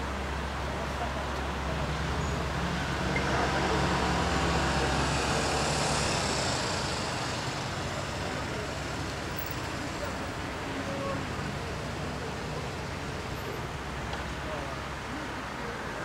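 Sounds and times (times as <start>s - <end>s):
vehicle passing: 1.7s - 10.6s.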